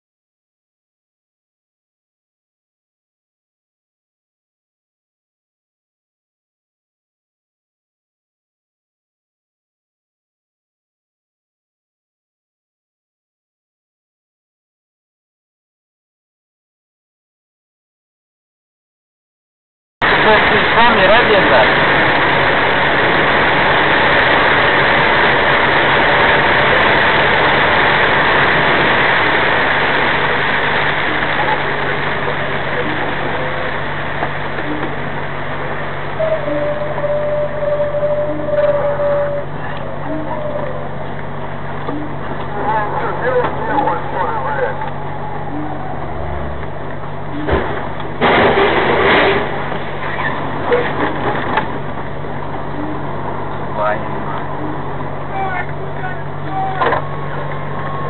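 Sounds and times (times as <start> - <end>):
tyres hissing on wet road: 20.0 - 37.1
truck engine running: 20.0 - 58.0
loud crunching collision: 47.5 - 51.8.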